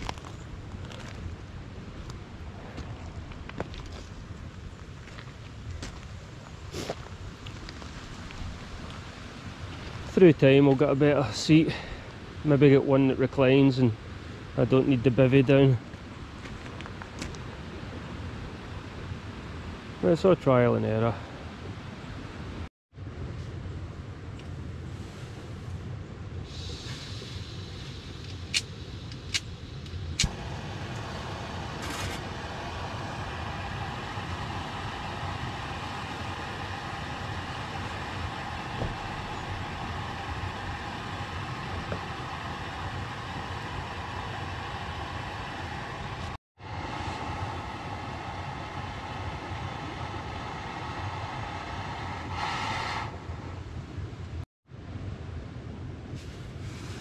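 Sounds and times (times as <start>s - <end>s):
gas stove burner hissing: 26.4s - 53.7s.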